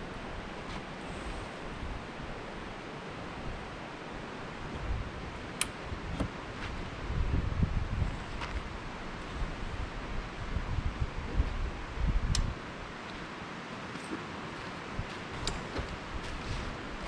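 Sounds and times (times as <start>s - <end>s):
wind buffeting microphone: 0.0s - 13.3s, 14.5s - 17.0s
sharp light clicks: 12.3s - 12.5s.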